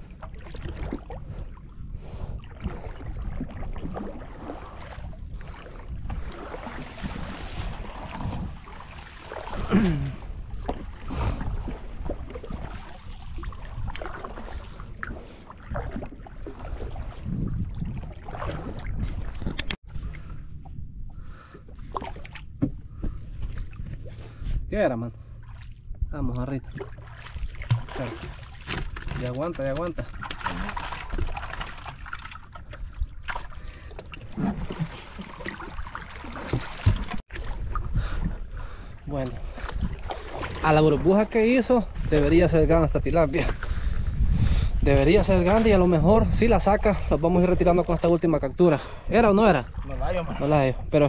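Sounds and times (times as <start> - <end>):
water dripping and splashing: 0.0 - 19.8, 25.3 - 42.3
low wind rumble on microphone: 0.0 - 24.8, 36.5 - 51.0.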